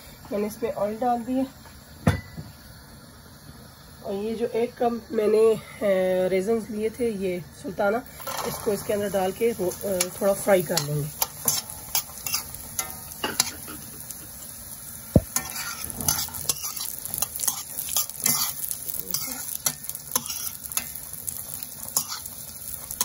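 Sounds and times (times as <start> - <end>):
fruit sizzling in hot oil: 0.0 - 23.0
metal spoon stirring and scraping: 8.2 - 13.7, 15.4 - 23.0.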